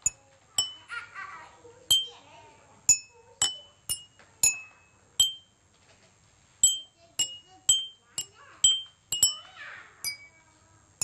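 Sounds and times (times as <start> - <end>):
water glasses struck with pen: 0.0 - 0.9, 1.9 - 2.2, 2.9 - 5.5, 6.6 - 9.4, 10.0 - 10.3.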